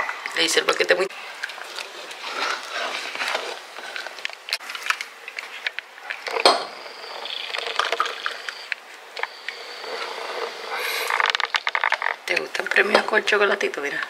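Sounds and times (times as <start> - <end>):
utensils scraping a saucepan: 9.2 - 12.0.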